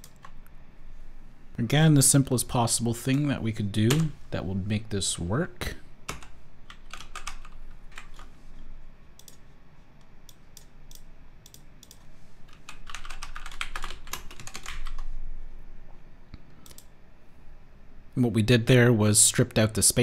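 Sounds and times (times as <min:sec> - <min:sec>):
typing on keyboard: 0:06.1 - 0:08.3, 0:10.9 - 0:15.1.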